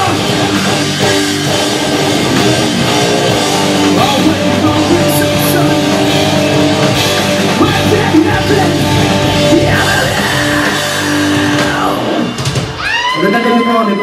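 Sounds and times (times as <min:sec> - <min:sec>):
bass guitar: 0:00.0 - 0:13.2
distorted electric guitars: 0:00.0 - 0:14.0
drum kit: 0:00.0 - 0:14.0
singer shouting into microphone: 0:12.9 - 0:14.0.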